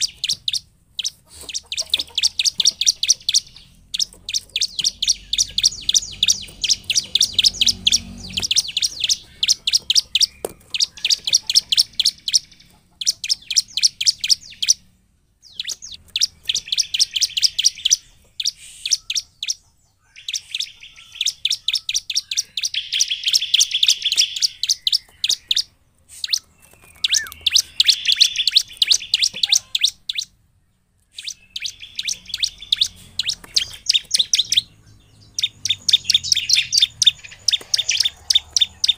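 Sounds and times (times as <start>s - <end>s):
bird singing sharp chipping notes: 0.0s - 38.9s.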